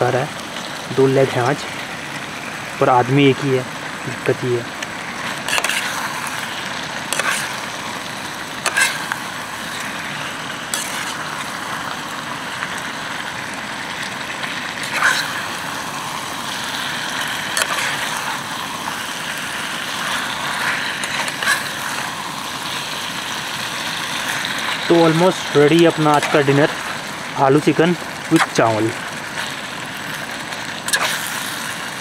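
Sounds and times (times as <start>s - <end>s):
food frying in a pan: 0.0s - 32.0s
metal spatula scraping a pan: 5.3s - 6.5s, 7.1s - 7.8s, 8.6s - 9.9s, 10.7s - 11.2s, 14.8s - 15.5s, 17.2s - 18.4s, 20.0s - 22.2s.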